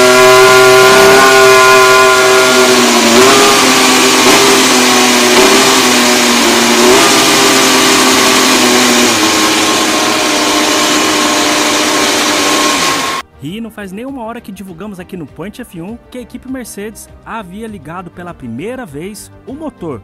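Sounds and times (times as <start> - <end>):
race car engine idling with revs: 0.0 - 13.2.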